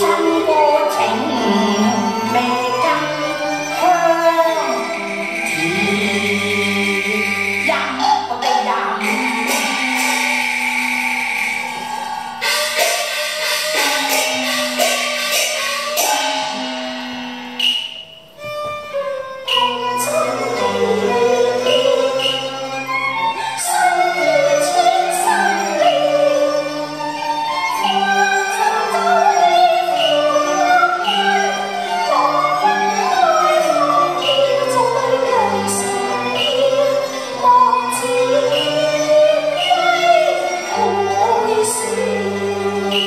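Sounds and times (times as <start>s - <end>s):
woman singing: 0.0s - 5.0s, 5.6s - 10.6s, 19.6s - 43.0s
bowed strings ensemble melody: 0.0s - 43.0s
sharp percussion clacks: 0.0s - 43.0s.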